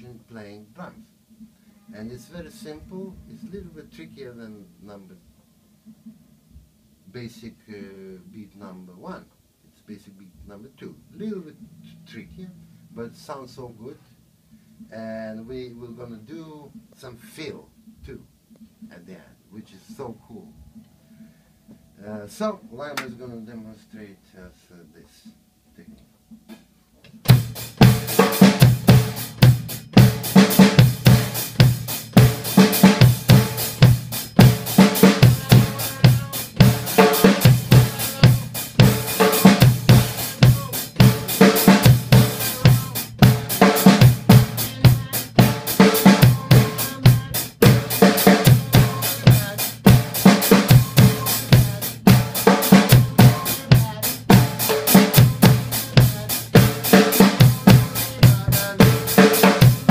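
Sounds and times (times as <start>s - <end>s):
drum kit playing rock beat: 26.5s - 59.9s.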